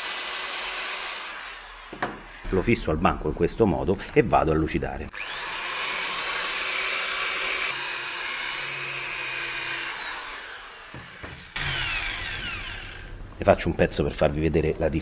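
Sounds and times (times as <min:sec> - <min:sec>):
electric drill whining: 0:00.0 - 0:02.8, 0:05.1 - 0:13.4.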